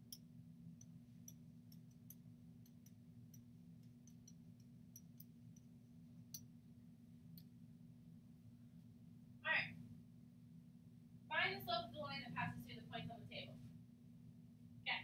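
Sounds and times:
stylus tapping on tablet: 0:00.0 - 0:06.5
low steady hum: 0:00.0 - 0:15.0.

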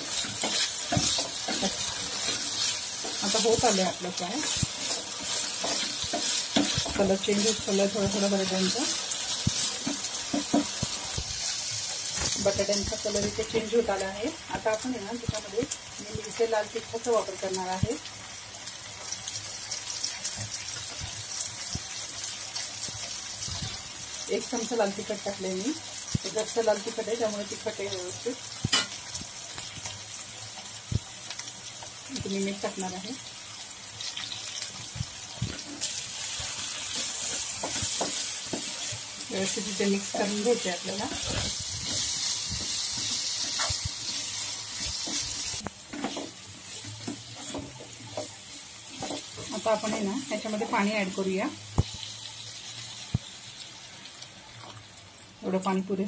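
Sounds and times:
spatula scraping pan: 0:00.0 - 0:11.0, 0:35.5 - 0:50.1
potatoes sizzling in oil: 0:00.0 - 0:56.0.

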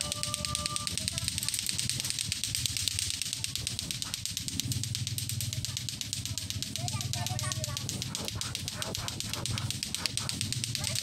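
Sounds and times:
fast even ticking: 0:00.0 - 0:11.0
children's voices: 0:05.6 - 0:08.8.

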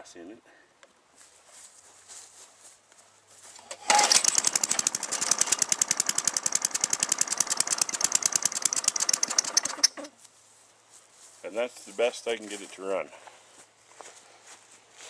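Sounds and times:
lawn mower engine running: 0:03.6 - 0:10.1.

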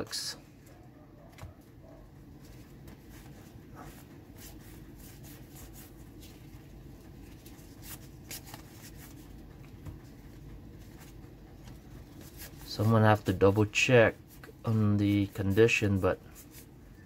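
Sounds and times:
steady low hum: 0:00.0 - 0:17.0
cards sliding and clicking: 0:07.4 - 0:10.0.

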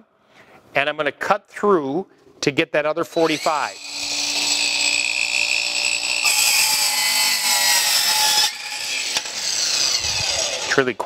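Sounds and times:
miter saw whining: 0:03.1 - 0:11.0
saw cutting through wood trim: 0:03.1 - 0:11.0.

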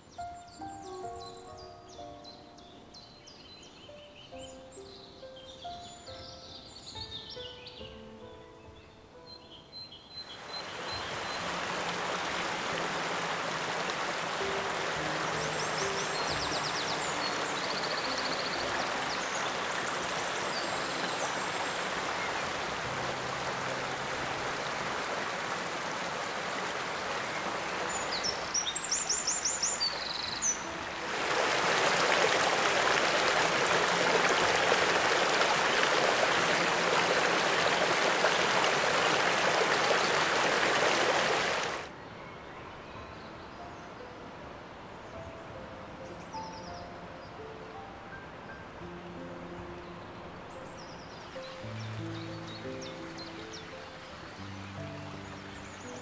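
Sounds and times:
small birds chirping: 0:00.0 - 0:44.0
woodland stream rushing: 0:09.5 - 0:42.0, 0:43.1 - 0:56.0.

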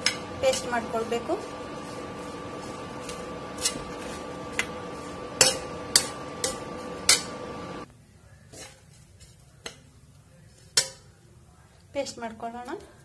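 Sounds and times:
spatula scraping a pan: 0:00.0 - 0:07.9, 0:08.5 - 0:09.8
steady background hum: 0:00.0 - 0:08.8.

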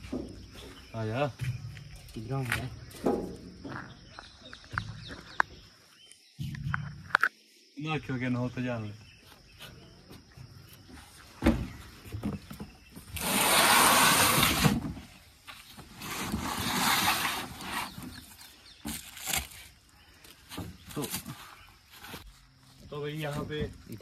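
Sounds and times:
carton scraping on truck bed: 0:11.2 - 0:19.6
thump: 0:11.4 - 0:12.4.

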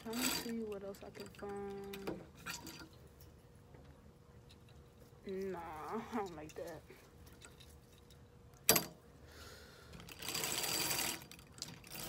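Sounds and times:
hangers scraping along metal rack: 0:00.0 - 0:03.2, 0:05.2 - 0:08.1, 0:09.9 - 0:12.0.

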